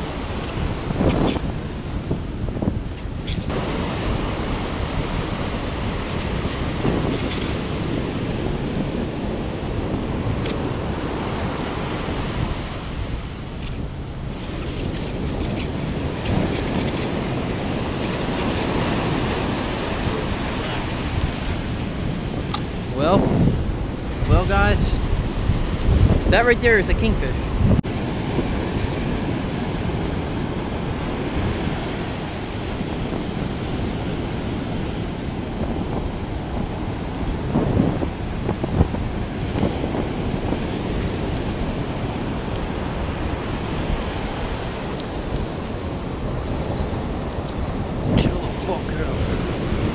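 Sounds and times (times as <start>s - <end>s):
ocean surf breaking on sand: 0.0s - 49.9s
wind buffeting microphone: 0.0s - 49.9s.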